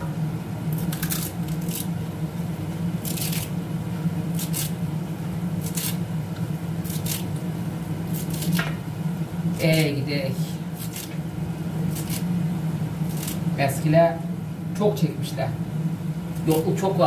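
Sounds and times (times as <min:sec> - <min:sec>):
steady low hum: 0:00.0 - 0:17.0
leaves rustling and tearing: 0:00.8 - 0:02.0, 0:03.0 - 0:03.6, 0:04.3 - 0:04.8, 0:05.6 - 0:06.0, 0:06.8 - 0:07.4, 0:08.1 - 0:08.6, 0:10.8 - 0:11.2, 0:11.9 - 0:12.3, 0:13.1 - 0:13.5.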